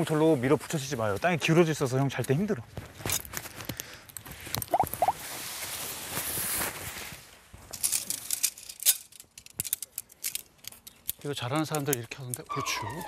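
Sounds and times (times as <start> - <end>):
tent fabric rustling: 4.8 - 8.3
tent poles clicking together: 7.7 - 13.0.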